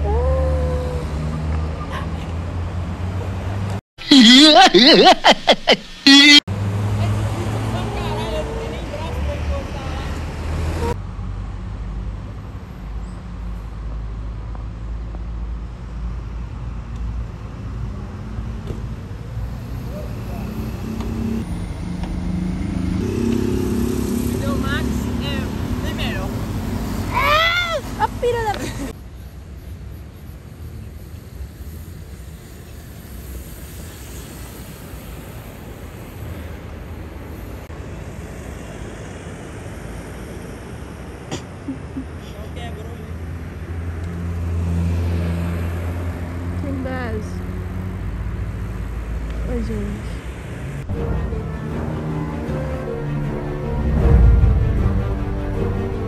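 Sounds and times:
engine hum: 0.0 - 56.0
road traffic rumble: 0.0 - 56.0.

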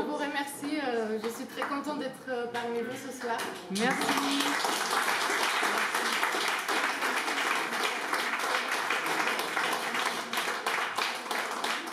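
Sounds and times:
audience clapping: 3.5 - 11.9.

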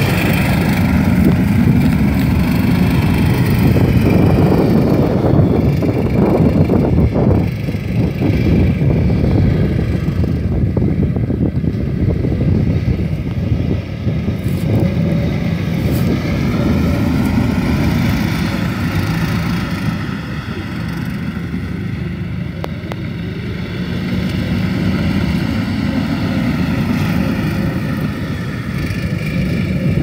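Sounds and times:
vehicle engine running: 0.0 - 30.0.

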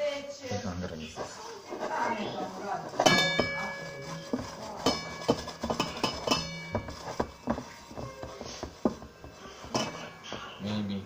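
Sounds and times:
metal knocks and clinks on pot: 2.9 - 10.6.

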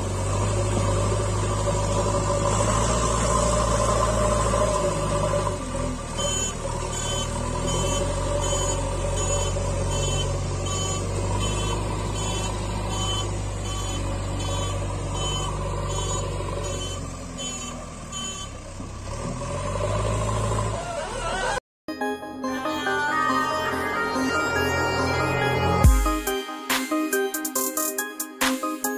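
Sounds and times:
truck engine hum: 0.0 - 21.6, 22.4 - 26.2
reversing alarm beeping: 6.2 - 18.6, 22.4 - 26.4.

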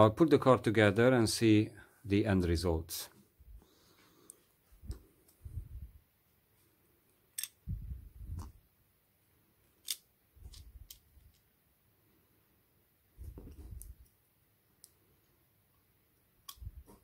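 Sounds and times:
soft bumps of fingers and parts: 7.7 - 8.6, 13.2 - 14.2.

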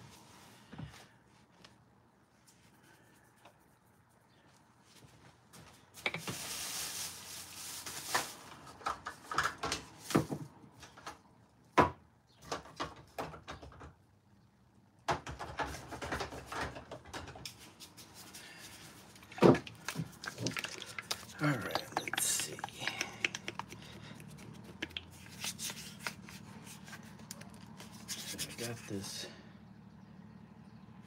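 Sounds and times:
hard objects knocking and rattling: 15.1 - 17.4, 19.2 - 26.3.

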